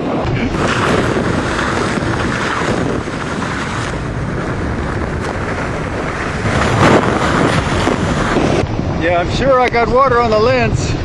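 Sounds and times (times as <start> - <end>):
wind buffeting microphone: 0.0 - 11.0
choppy water slapping boat: 0.2 - 8.7.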